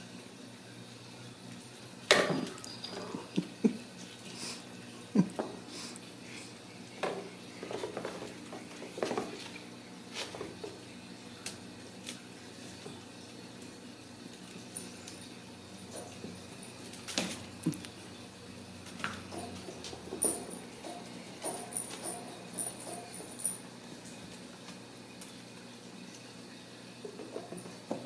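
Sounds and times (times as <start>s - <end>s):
kittens' paws tapping and scraping: 7.6s - 10.9s.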